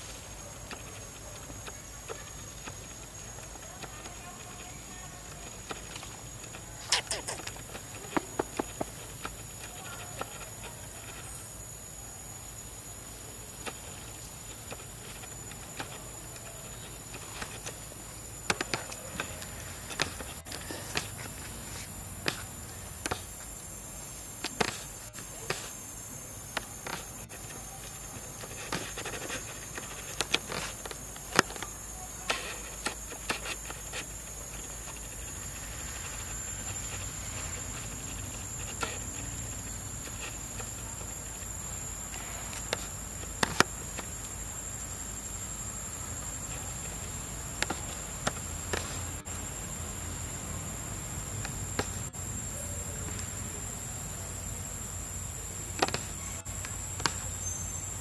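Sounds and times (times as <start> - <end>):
high-pitched insect drone: 43.8 - 58.0.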